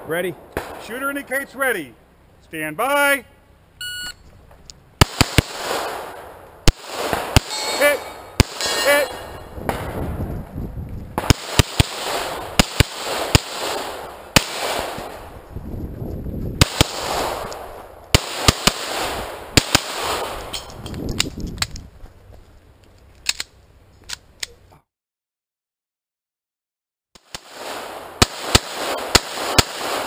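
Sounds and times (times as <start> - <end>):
pistol shots: 5.0 - 10.0, 11.2 - 15.3, 16.6 - 20.7, 27.2 - 30.0.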